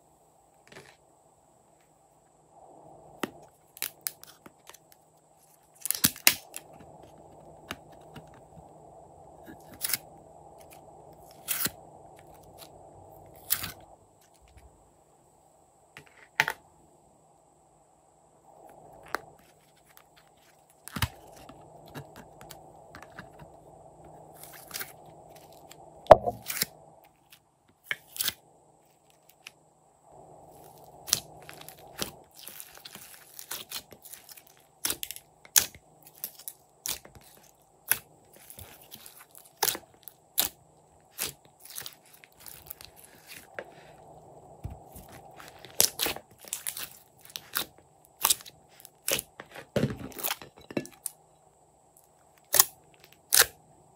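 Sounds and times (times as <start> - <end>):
slime crackling and popping: 31.0 - 40.5, 41.1 - 43.4, 45.0 - 49.3.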